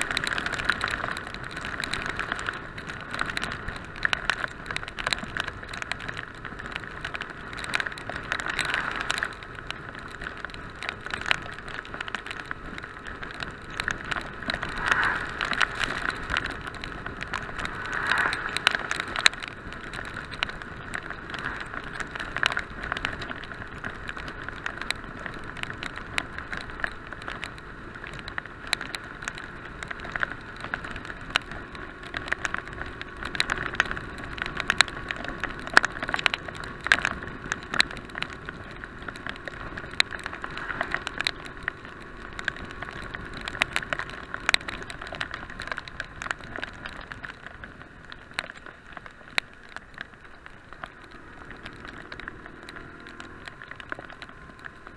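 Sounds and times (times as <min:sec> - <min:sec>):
motorcycle riding noise: 0:00.0 - 0:54.9
rain tapping on camera housing: 0:00.0 - 0:54.9
wind rush: 0:13.6 - 0:22.0.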